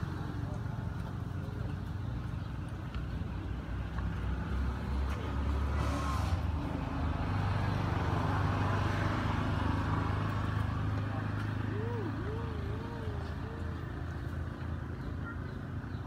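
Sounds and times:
vehicle engine droning: 0:00.0 - 0:16.0.

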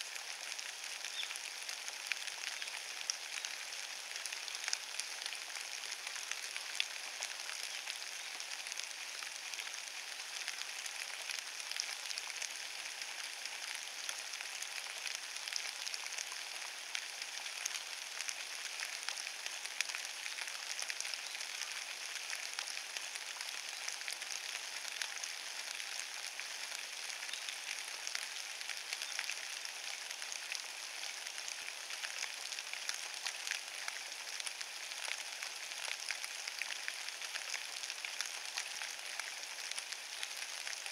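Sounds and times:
rain on wet leaves: 0:00.0 - 0:40.9.

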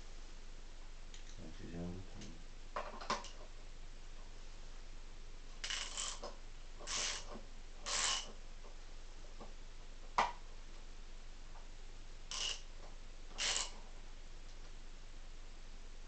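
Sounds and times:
wrench turning bolt: 0:05.6 - 0:06.2, 0:06.8 - 0:07.3, 0:07.9 - 0:08.3, 0:12.3 - 0:12.6, 0:13.4 - 0:13.7.

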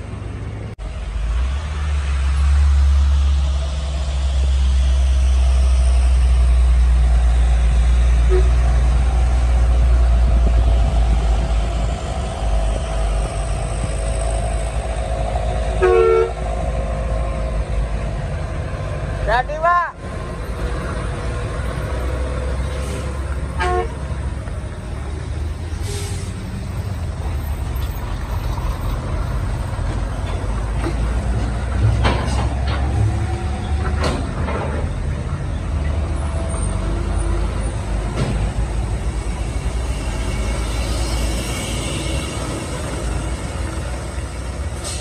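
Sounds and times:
heavy truck engines rumbling: 0:00.0 - 0:45.0.

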